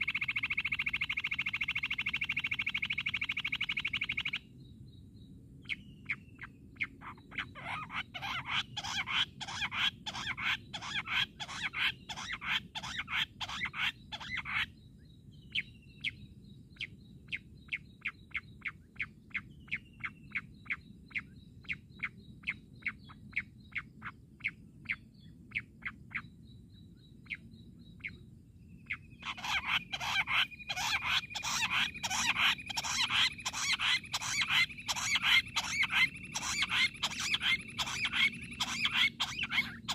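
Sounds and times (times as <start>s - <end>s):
quail calling: 6.8s - 14.7s, 28.9s - 39.9s.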